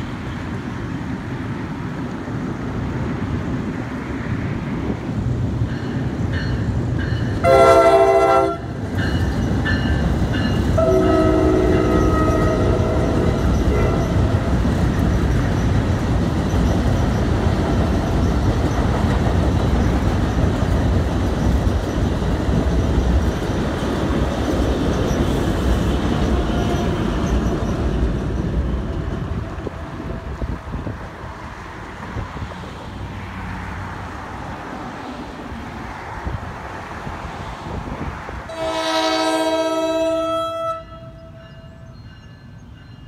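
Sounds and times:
train wheels rumbling on bridge: 0.0s - 43.0s
train horn: 7.4s - 8.8s, 10.8s - 14.5s, 38.5s - 41.9s.

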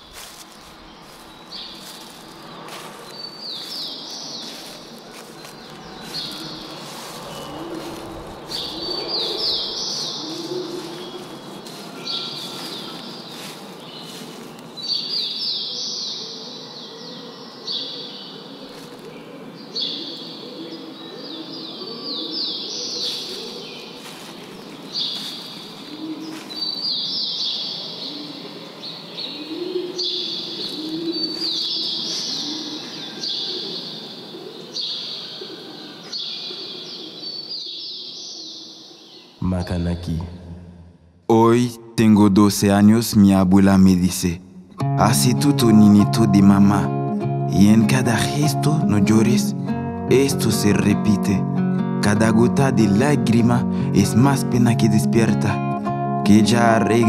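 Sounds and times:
songbird singing high notes: 0.8s - 18.3s, 44.9s - 51.3s
dove cooing: 4.4s - 37.5s.

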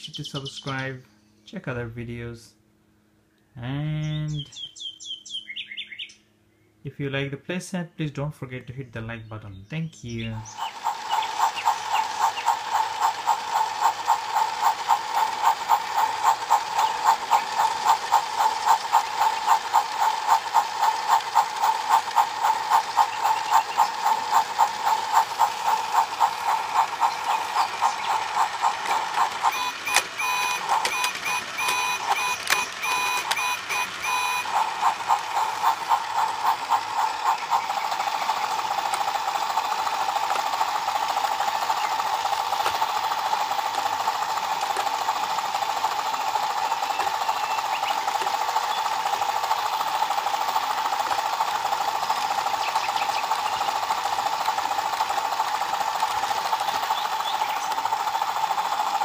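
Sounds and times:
toy train gears clicking: 10.4s - 59.0s
short electronic beeps: 29.5s - 34.5s.

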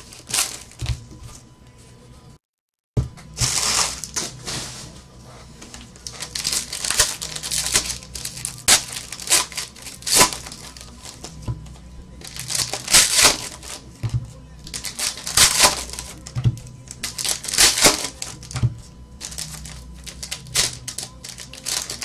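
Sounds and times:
foil wrapper crinkling and tearing: 0.0s - 0.8s, 3.4s - 4.3s, 6.0s - 11.3s, 12.2s - 13.8s, 14.7s - 16.2s, 16.9s - 18.6s, 19.2s - 22.0s.

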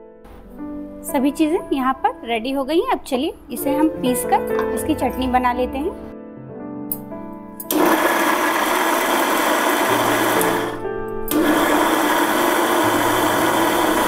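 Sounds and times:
mixer grinder running: 7.7s - 14.0s.

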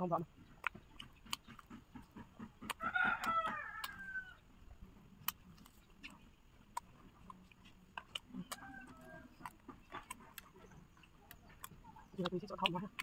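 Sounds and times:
rooster crowing: 2.8s - 4.4s, 8.4s - 9.5s.

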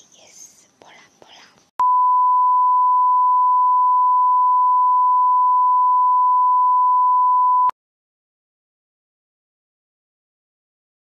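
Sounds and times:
test-tone beep: 1.8s - 7.7s.

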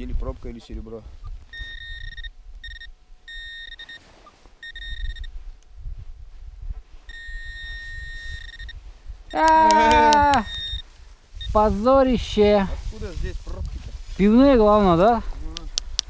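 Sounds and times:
metal detector high beep: 1.2s - 5.4s, 7.0s - 11.8s.

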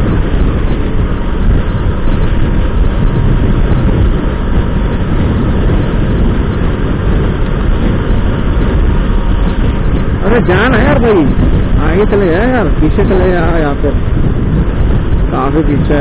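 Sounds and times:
motorcycle engine running: 0.0s - 16.0s
wind rushing over microphone: 0.0s - 16.0s.

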